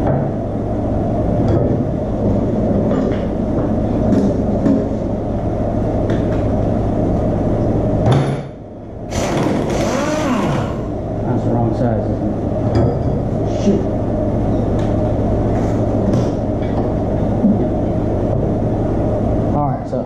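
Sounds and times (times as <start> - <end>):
low machine drone: 0.0 - 20.0.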